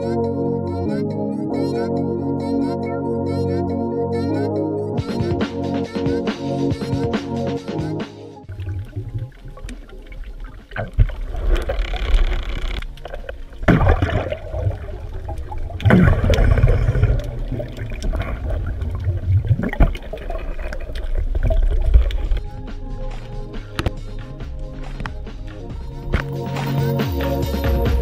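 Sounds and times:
underwater bubbling: 0:08.4 - 0:27.8
muffled underwater rushing: 0:08.4 - 0:28.0.

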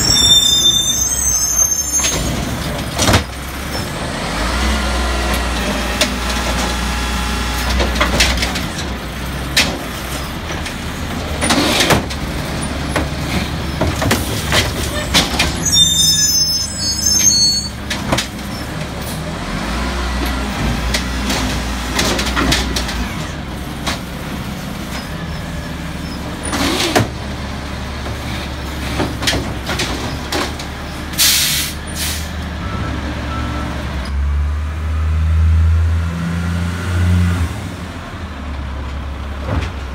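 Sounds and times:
high squeal: 0:00.0 - 0:02.4, 0:15.6 - 0:17.8
carts knocking and banging: 0:07.7 - 0:15.6
air brake hiss: 0:31.2 - 0:32.3.

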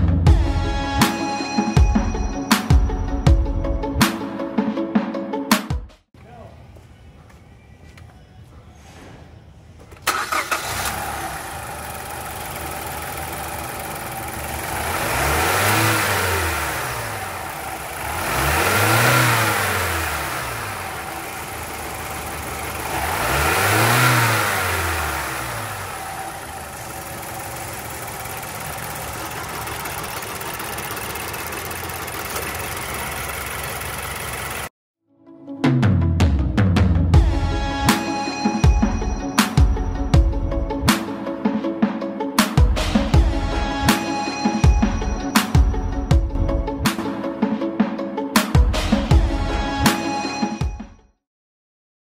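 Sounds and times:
car engine idling and revving: 0:09.9 - 0:34.7.

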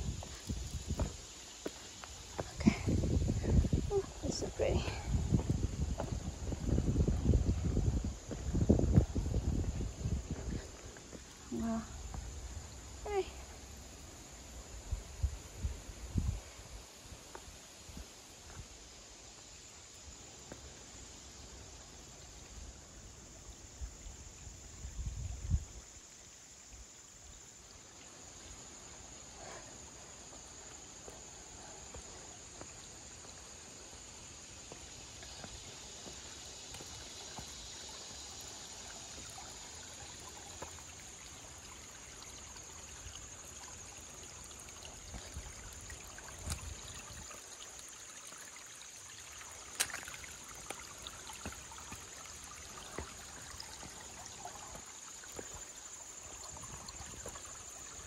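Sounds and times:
water trickling over rocks: 0:00.0 - 0:58.0
low rumbles on microphone: 0:02.6 - 0:10.7.

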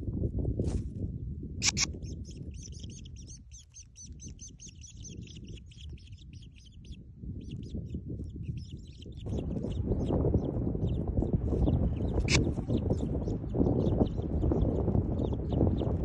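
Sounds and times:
sharp click: 0:01.6 - 0:02.0
nestlings chirping: 0:01.6 - 0:16.0
low rumble: 0:04.6 - 0:16.0.

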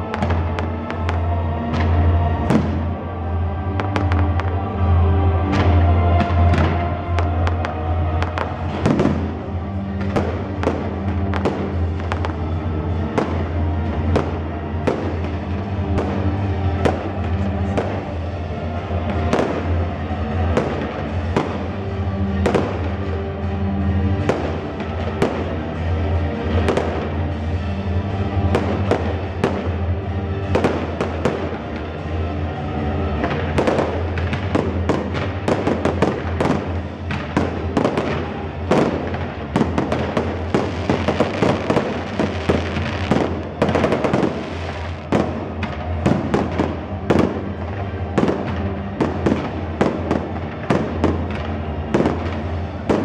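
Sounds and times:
music playing: 0:00.0 - 0:53.0.

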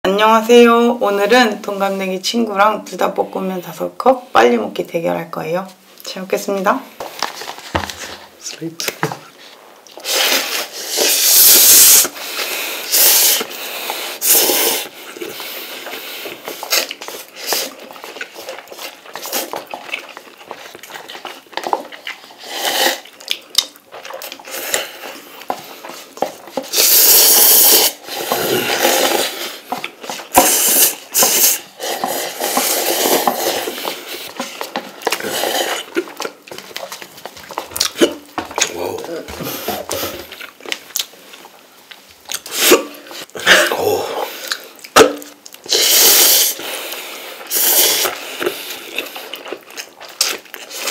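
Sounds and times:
people chewing: 0:06.9 - 0:50.9
people slurping noodles: 0:10.0 - 0:40.6, 0:42.4 - 0:50.9.

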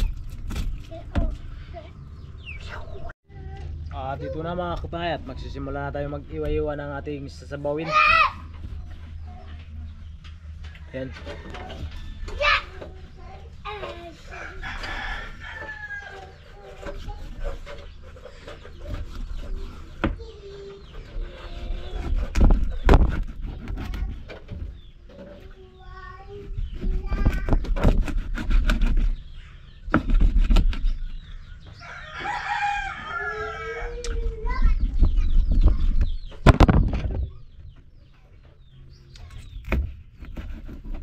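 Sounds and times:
chickens clucking: 0:08.4 - 0:27.6
rooster crowing: 0:14.3 - 0:16.3, 0:31.8 - 0:34.0.

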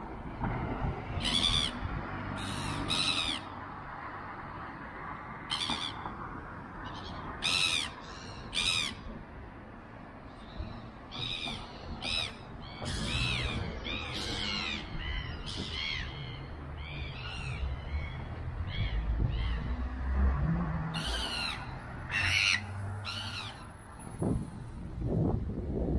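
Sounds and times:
birds calling: 0:01.2 - 0:03.6, 0:05.4 - 0:06.2, 0:06.8 - 0:09.1, 0:10.3 - 0:23.8.

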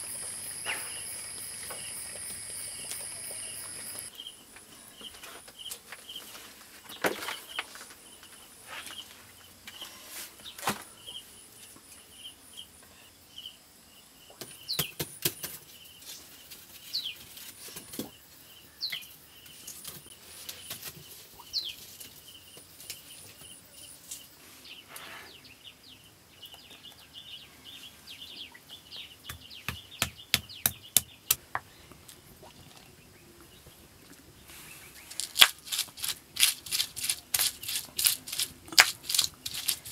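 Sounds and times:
birds chirping: 0:00.0 - 0:04.4.

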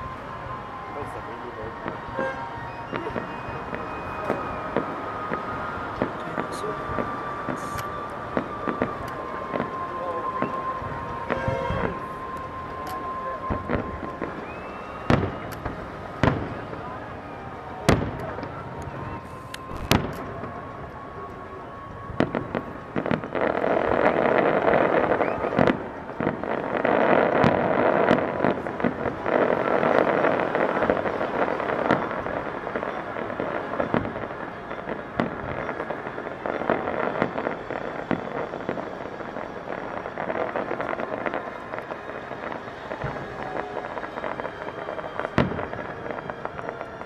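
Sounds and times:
dense fireworks crackling: 0:00.0 - 0:47.0
firework shells bursting: 0:19.4 - 0:20.4.

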